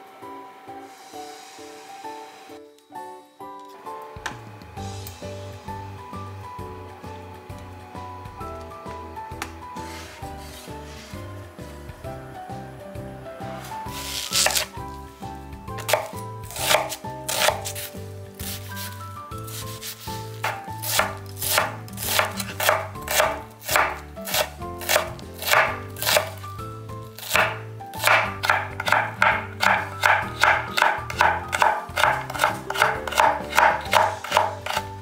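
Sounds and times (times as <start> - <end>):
background music: 0.0 - 35.0
knife chopping on wooden board: 13.9 - 14.7, 15.8 - 18.9, 19.5 - 26.4, 27.2 - 35.0.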